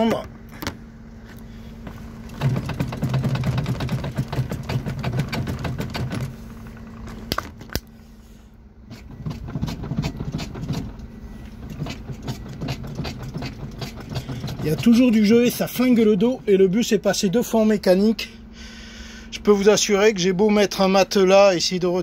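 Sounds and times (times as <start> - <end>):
seat rattling and knocking: 1.8 - 7.6, 8.9 - 15.2.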